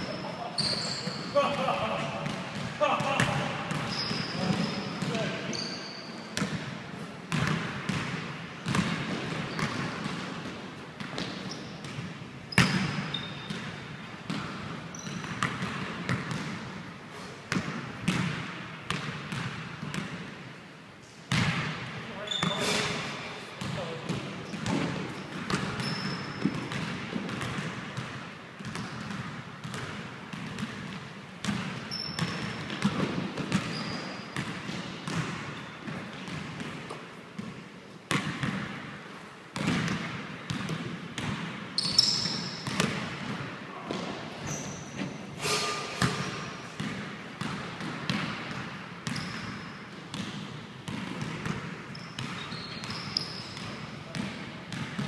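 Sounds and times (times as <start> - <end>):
sneaker squeaks: 0.0 - 1.5, 3.6 - 6.5, 8.7 - 10.1, 11.1 - 15.6, 22.1 - 26.8, 28.7 - 29.8, 31.8 - 36.1, 41.8 - 42.9, 43.8 - 46.8, 49.0 - 50.3, 51.9 - 55.0.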